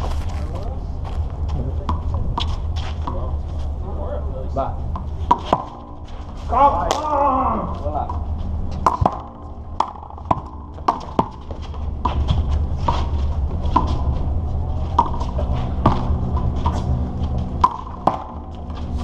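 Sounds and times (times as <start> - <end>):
steady low rumble: 0.0 - 19.0
ball smacking concrete wall: 5.0 - 5.9, 8.8 - 13.1, 17.6 - 18.6.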